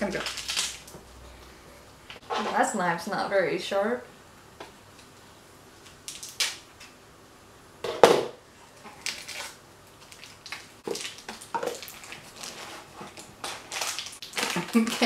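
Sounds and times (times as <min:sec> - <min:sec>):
foil wrapper crinkling: 0:00.0 - 0:01.0, 0:05.8 - 0:06.7, 0:08.9 - 0:15.0.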